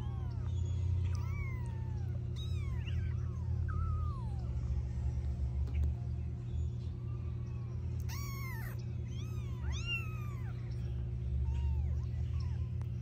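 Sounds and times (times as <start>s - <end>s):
kittens mewing: 0.0s - 4.6s, 8.0s - 13.0s
steady low hum: 0.0s - 13.0s.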